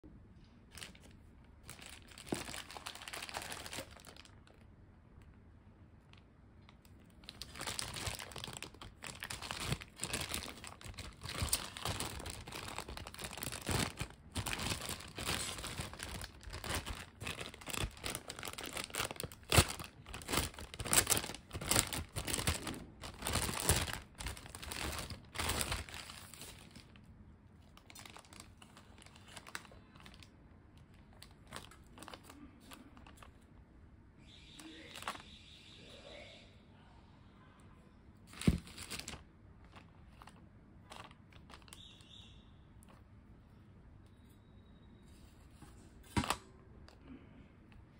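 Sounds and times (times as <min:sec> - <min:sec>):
plastic bag crinkling: 0:00.7 - 0:04.7, 0:06.0 - 0:33.5, 0:34.6 - 0:35.2, 0:38.3 - 0:42.0.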